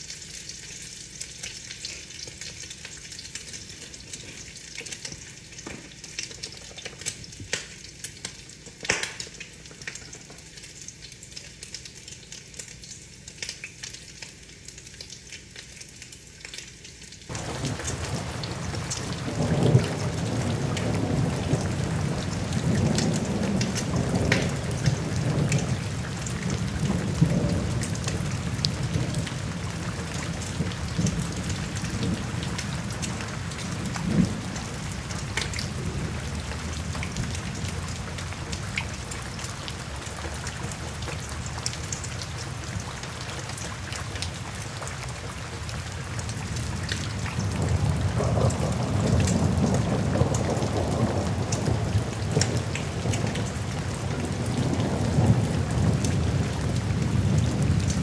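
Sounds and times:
rain on a window: 0.0 - 58.0
low rumble of thunder: 17.3 - 43.1, 46.2 - 58.0.

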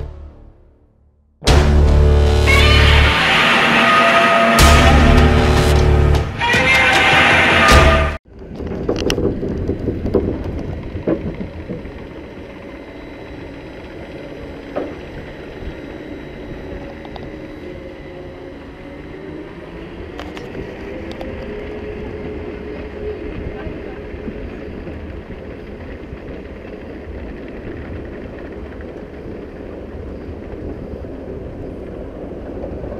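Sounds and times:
loud music: 1.4 - 3.8, 4.5 - 8.2
lift hill mechanical hum: 1.5 - 32.9
roller coaster train rumbling: 1.5 - 32.9
roller coaster clanks and knocks: 4.4 - 16.1, 20.2 - 32.9.

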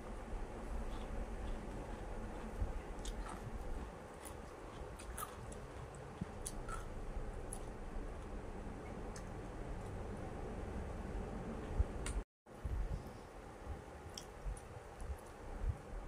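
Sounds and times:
low background hum: 0.0 - 16.0
crunching raw vegetables: 0.7 - 8.4.

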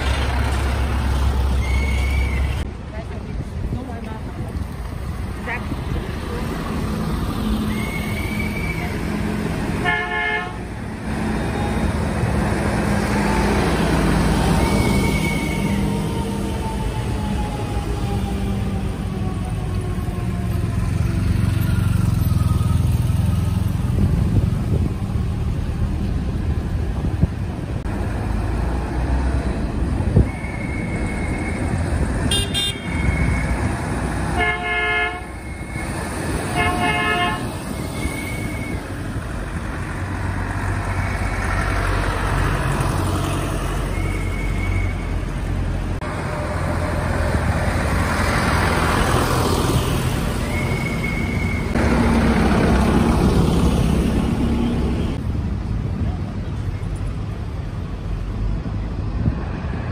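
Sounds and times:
diesel tractor engines: 0.0 - 59.9
loud horn honks: 9.8 - 10.7, 32.2 - 33.1, 34.3 - 35.4, 36.5 - 37.6.

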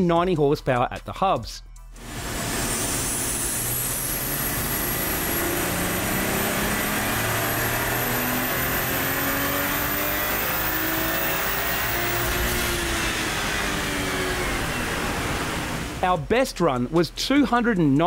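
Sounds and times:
engine revving under load: 2.0 - 16.1
high turbo whine: 2.0 - 16.4.

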